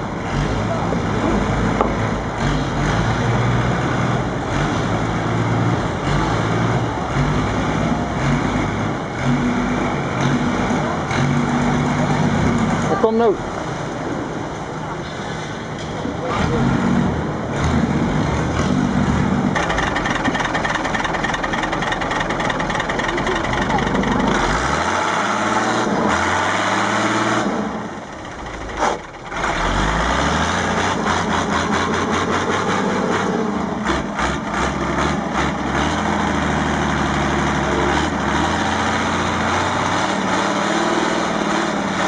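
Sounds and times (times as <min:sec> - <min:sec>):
boat engine low drone: 0:00.0 - 0:41.9
boat engine running: 0:19.1 - 0:26.2
propeller churning water: 0:19.6 - 0:27.0.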